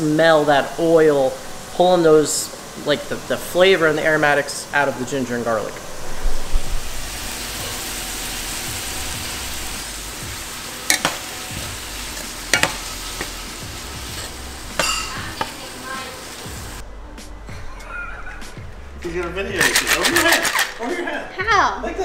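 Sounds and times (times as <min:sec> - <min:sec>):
vegetables sizzling in oil: 0:00.0 - 0:16.8
metal utensil clinking on pan: 0:10.9 - 0:11.2, 0:14.8 - 0:15.5.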